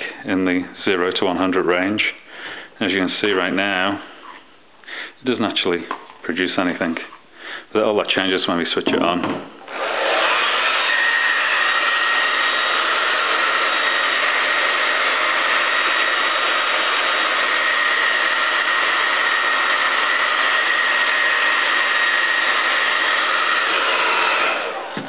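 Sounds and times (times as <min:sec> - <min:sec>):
hairdryer running: 0:09.7 - 0:25.0.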